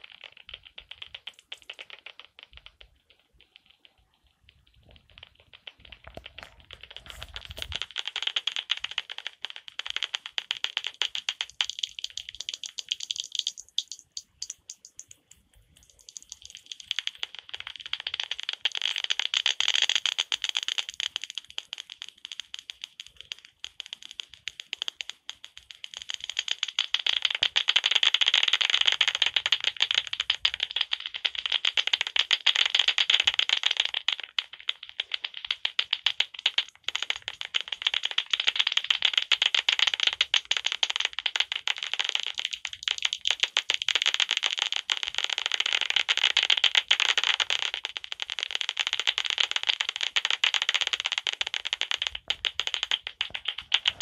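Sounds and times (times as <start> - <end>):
bat detector clicking: 12.6 - 15.2.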